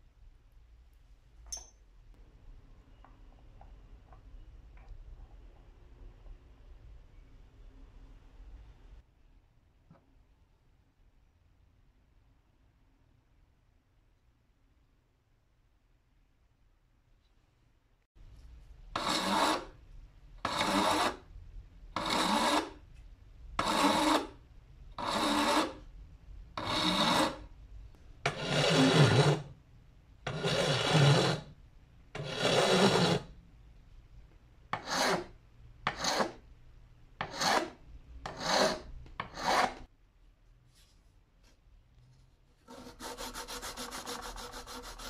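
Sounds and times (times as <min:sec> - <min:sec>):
hand file rasping on metal: 0:19.0 - 0:19.7, 0:20.4 - 0:21.2, 0:22.0 - 0:22.8, 0:23.6 - 0:24.3, 0:25.0 - 0:25.8, 0:26.6 - 0:27.4, 0:28.3 - 0:29.5, 0:30.3 - 0:31.5, 0:32.2 - 0:33.3, 0:34.8 - 0:35.3, 0:35.9 - 0:36.4, 0:37.2 - 0:39.9, 0:42.6 - 0:45.0.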